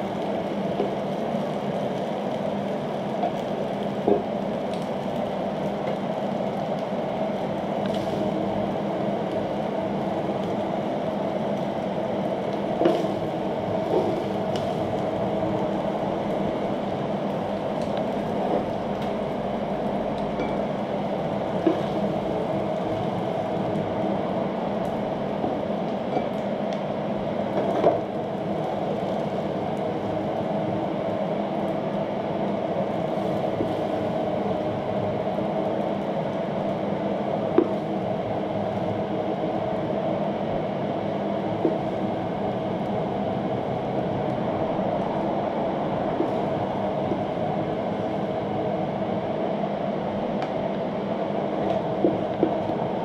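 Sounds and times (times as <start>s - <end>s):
steady background hum: 0.0s - 53.0s.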